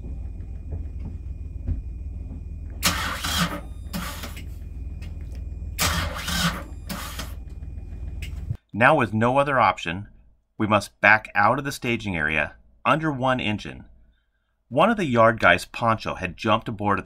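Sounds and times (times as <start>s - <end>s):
low engine rumble: 0.0s - 8.6s
engine starter cranking: 2.8s - 4.5s, 5.7s - 8.4s.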